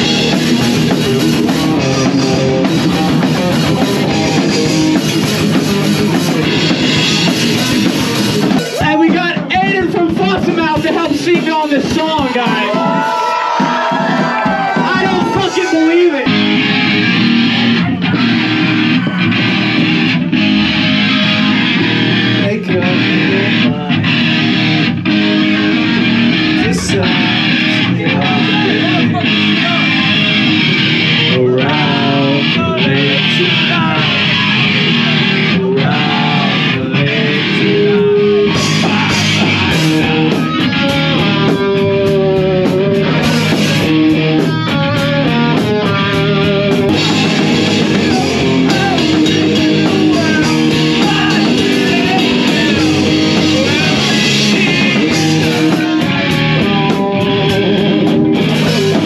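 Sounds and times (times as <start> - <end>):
drums: 0.0 - 59.0
electric guitars: 0.0 - 59.0
person singing into a microphone: 22.2 - 24.2, 26.5 - 59.0.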